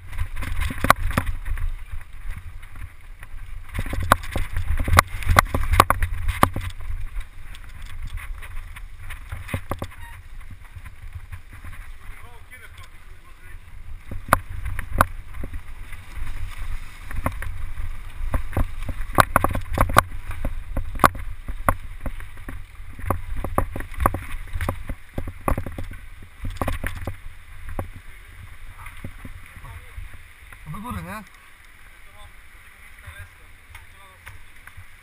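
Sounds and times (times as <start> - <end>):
low wind rumble on microphone: 0.0 - 30.8
bike clicks and knocks: 0.1 - 11.8, 18.2 - 28.0.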